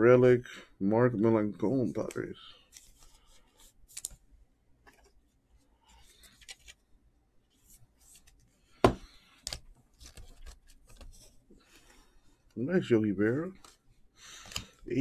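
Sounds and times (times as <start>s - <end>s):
trading cards sliding and rustling: 2.0s - 4.2s, 4.8s - 6.8s, 7.5s - 12.5s, 13.5s - 15.0s.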